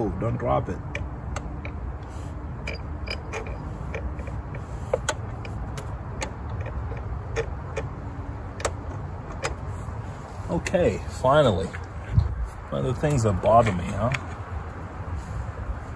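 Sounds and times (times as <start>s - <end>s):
steady low rumble: 0.9s - 15.9s
wrench clicking on metal: 2.6s - 7.9s.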